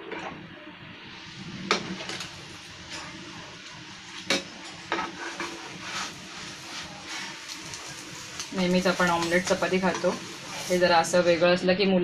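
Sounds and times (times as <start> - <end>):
faint frying sizzle: 0.0 - 12.0
metal spatula scraping frying pan: 4.2 - 11.4.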